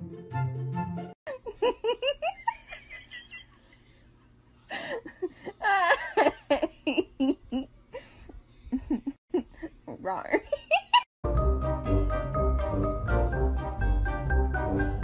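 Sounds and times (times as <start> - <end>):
background music: 0.0 - 1.2, 11.2 - 15.0
person laughing: 1.3 - 4.1, 4.7 - 11.1.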